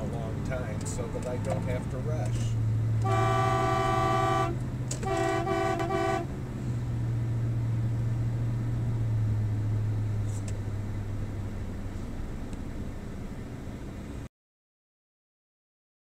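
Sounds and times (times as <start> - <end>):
moving car hum: 0.0 - 14.3
car horn honking: 3.0 - 6.4.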